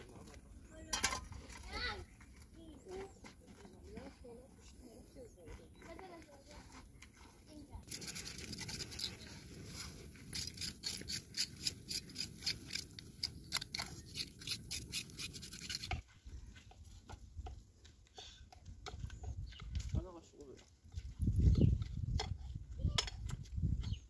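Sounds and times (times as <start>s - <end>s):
faint scrapes: 6.4s - 12.8s
hands scratching bird carcass: 7.9s - 16.0s.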